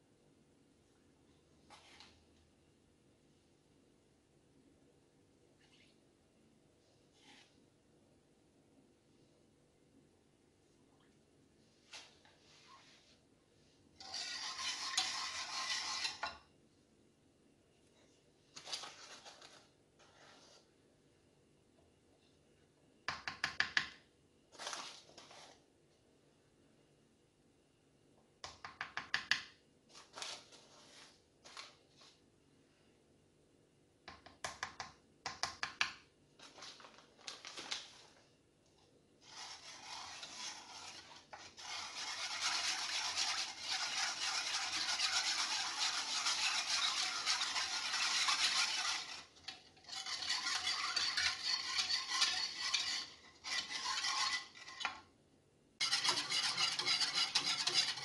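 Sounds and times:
whisk swishing and scraping in pan: 13.9 - 16.5, 18.6 - 20.7, 39.2 - 55.1, 55.8 - 58.0.

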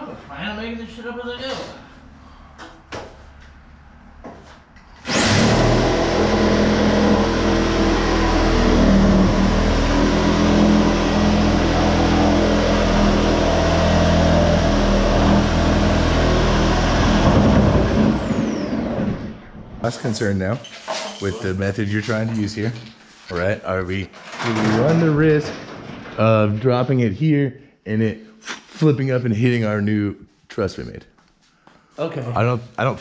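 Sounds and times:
power tool motor whine: 5.0 - 19.4.

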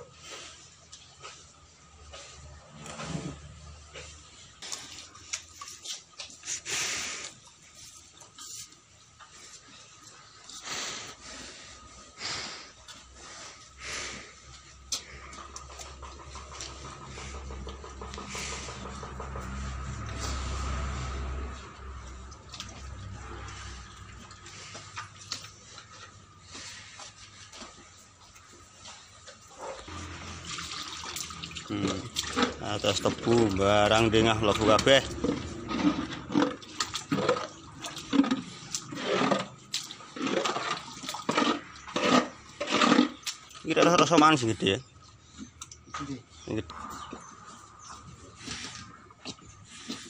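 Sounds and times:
cattle blowing while feeding: 0.0 - 43.6, 46.8 - 50.0
cow slurping wet mash: 0.0 - 50.0
tongue licking trough: 14.4 - 43.7
low rumble: 15.0 - 26.5, 29.8 - 38.9.

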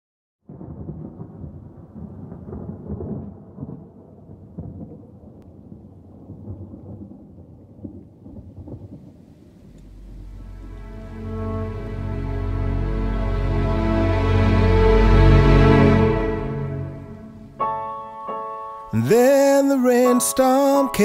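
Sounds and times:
rolling thunder: 0.5 - 12.2.

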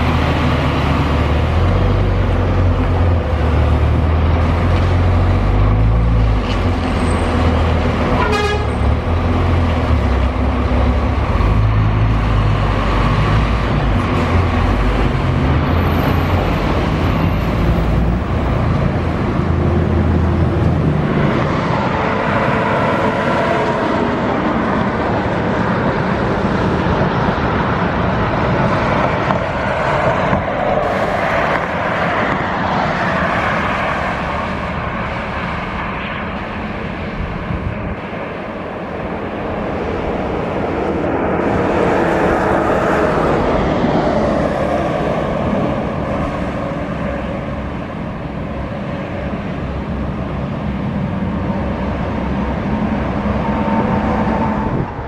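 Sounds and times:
diesel engine pulling away: 0.0 - 33.2
horn toot: 8.1 - 8.9
tyre and wind noise: 35.8 - 55.0.

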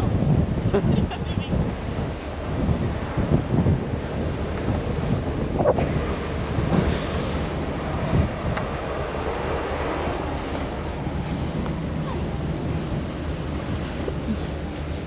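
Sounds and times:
choppy sea rushing: 0.0 - 15.0
wind buffeting microphone: 0.0 - 15.0.

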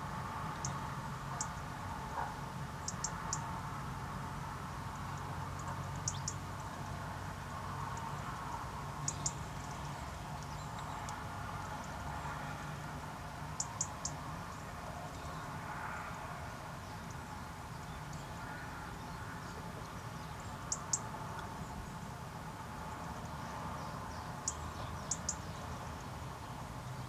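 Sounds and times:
small birds calling: 0.5 - 3.6, 4.9 - 6.6, 7.8 - 12.6, 13.5 - 16.0, 16.8 - 22.0, 23.0 - 26.2.

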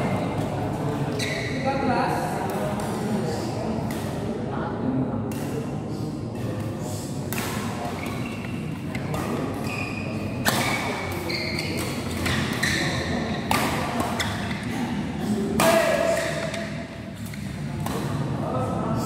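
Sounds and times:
spectators chatting: 0.0 - 19.0
rackets hitting shuttlecock: 6.4 - 14.7, 15.6 - 18.3.

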